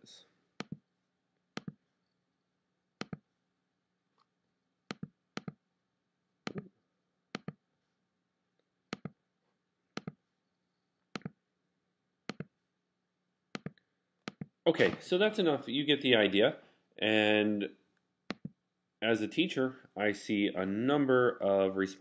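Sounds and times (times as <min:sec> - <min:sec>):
computer mouse clicking: 0:00.6 - 0:00.8, 0:01.6 - 0:01.8, 0:03.0 - 0:03.2, 0:04.9 - 0:05.6, 0:06.5 - 0:06.7, 0:07.4 - 0:07.6, 0:08.9 - 0:09.2, 0:10.0 - 0:10.2, 0:11.2 - 0:11.4, 0:12.3 - 0:12.5, 0:13.6 - 0:14.5, 0:18.3 - 0:18.6.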